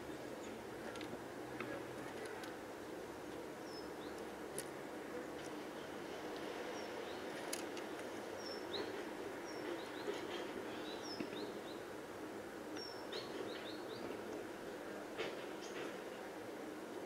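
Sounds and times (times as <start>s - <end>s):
steady background hum: 0.0s - 17.0s
small birds chirping: 3.6s - 4.3s, 8.3s - 11.9s, 12.8s - 14.2s.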